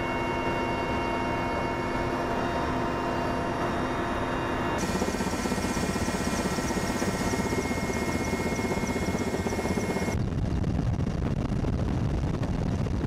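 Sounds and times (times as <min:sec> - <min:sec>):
helicopter turbine whine: 0:00.0 - 0:10.2
helicopter rotor thudding: 0:04.8 - 0:10.2.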